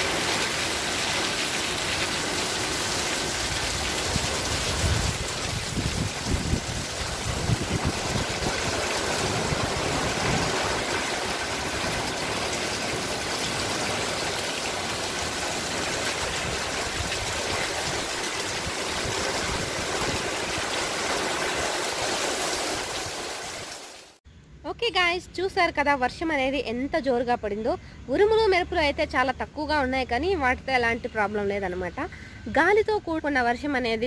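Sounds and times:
heavy rain pouring: 0:00.0 - 0:24.2
gusty low rumble: 0:04.2 - 0:11.1.

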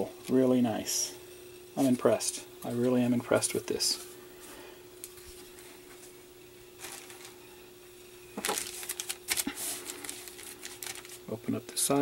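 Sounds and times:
faint steady hum: 0:00.0 - 0:12.0
plastic bag crinkling: 0:06.8 - 0:07.4, 0:08.4 - 0:11.3.

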